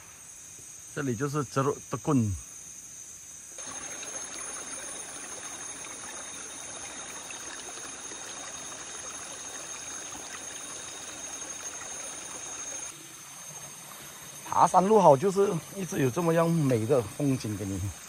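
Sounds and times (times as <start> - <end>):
stream trickling over stones: 3.6 - 18.0.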